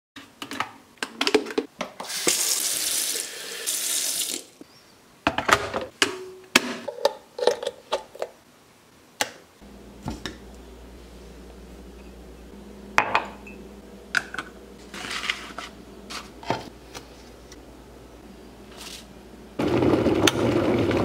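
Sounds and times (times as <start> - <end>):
tap water running into kettle: 2.0 - 4.4
low steady hum: 9.6 - 19.6.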